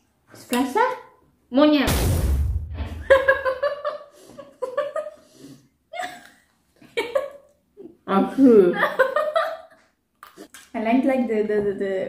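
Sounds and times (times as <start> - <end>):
low rumble: 1.9 - 3.4
women laughing: 3.0 - 5.2, 5.9 - 7.5.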